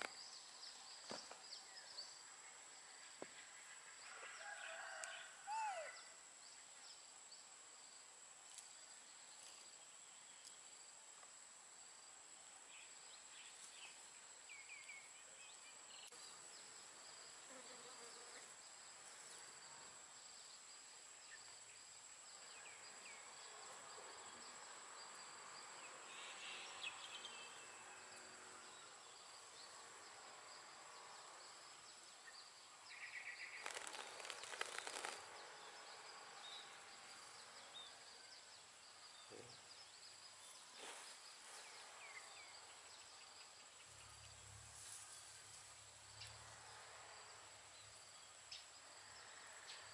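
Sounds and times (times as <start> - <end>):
rustling noise: 33.6 - 35.4, 40.7 - 42.0.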